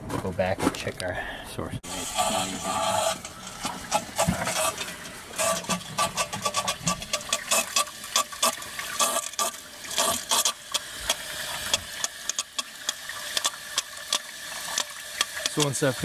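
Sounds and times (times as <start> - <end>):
sharp clicks and knocks: 3.1 - 15.8.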